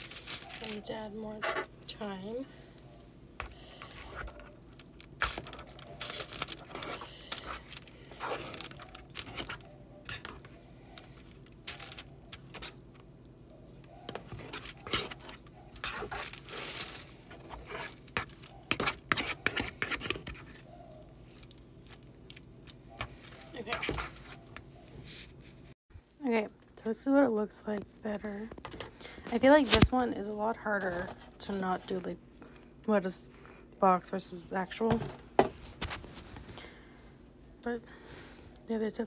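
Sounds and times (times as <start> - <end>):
plastic film crinkling: 0.0 - 0.9, 4.1 - 9.7, 14.4 - 18.7.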